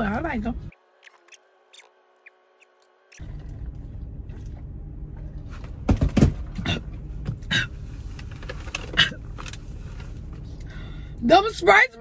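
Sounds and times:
low car rumble: 3.2 - 12.0
woman making throat sounds: 6.6 - 7.7.

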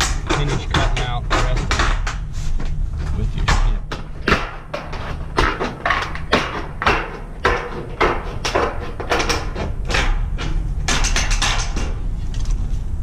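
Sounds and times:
low rumble: 0.0 - 13.0
metal snips cutting metal roofing: 3.4 - 12.6.

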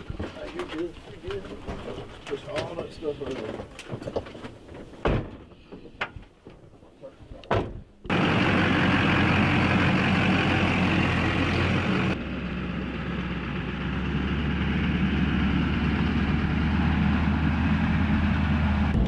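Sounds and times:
truck engine running: 8.1 - 19.0.

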